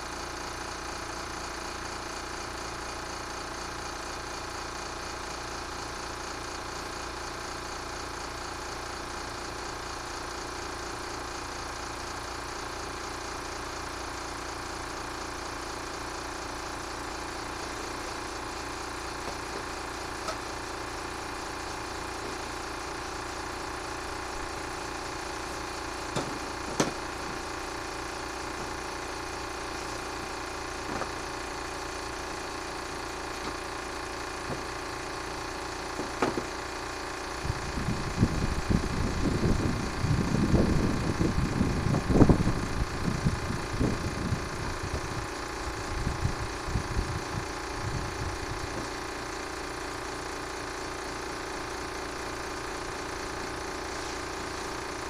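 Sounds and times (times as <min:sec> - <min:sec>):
electric fan humming: 0:12.1 - 0:55.0.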